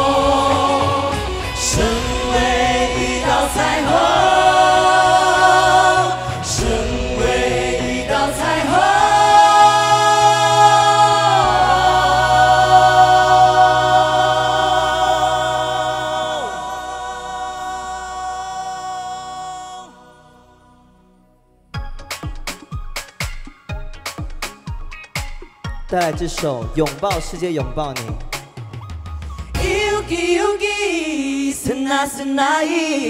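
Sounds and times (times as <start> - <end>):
backing music: 0.0 - 19.9, 21.8 - 32.6
person singing with vibrato: 0.0 - 20.9, 29.4 - 33.0.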